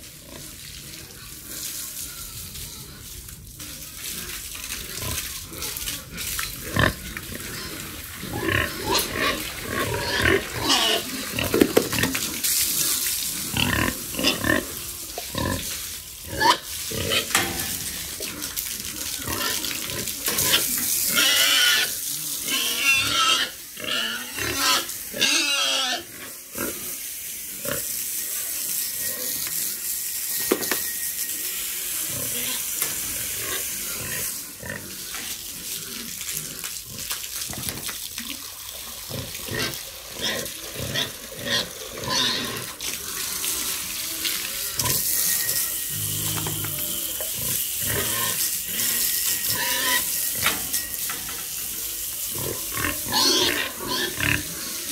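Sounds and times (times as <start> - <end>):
pigs grunting and squealing: 0.1 - 27.0, 31.8 - 54.9
hose spray hissing: 3.2 - 38.1.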